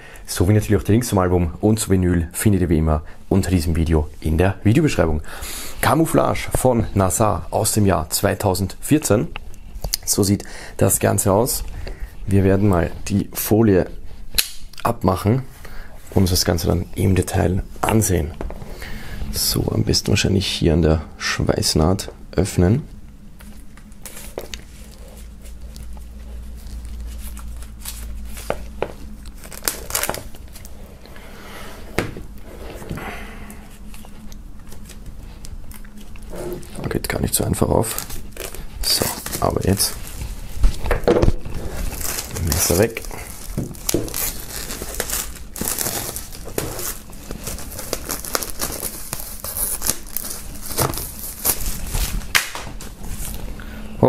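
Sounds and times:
plastic crackles and snaps: 14.4s - 14.9s
plastic wrap crinkling: 23.4s - 31.1s, 33.7s - 53.5s
knife slitting plastic wrap: 41.7s - 52.6s.

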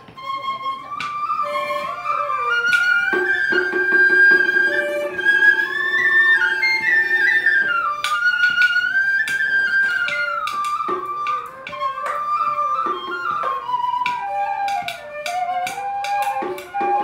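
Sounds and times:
bamboo flute melody: 0.0s - 17.0s
plucked zither notes: 0.4s - 9.5s.

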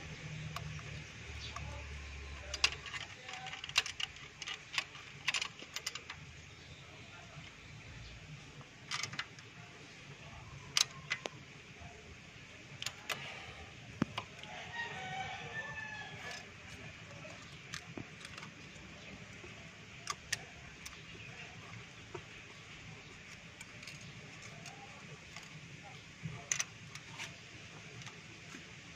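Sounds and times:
rooster crowing: 14.4s - 16.6s.

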